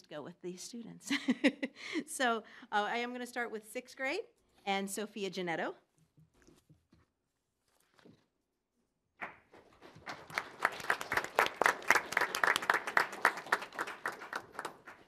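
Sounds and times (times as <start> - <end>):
audience applauding: 9.2 - 15.0.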